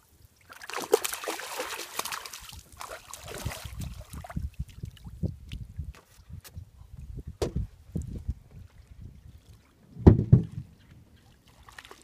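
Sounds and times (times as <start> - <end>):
fish thrashing in water: 0.5 - 4.5
low thumps: 10.0 - 10.7.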